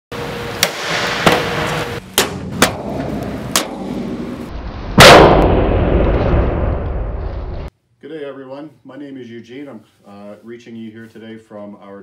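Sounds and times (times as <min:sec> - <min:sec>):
sharp knocks: 0:02.2 - 0:04.0.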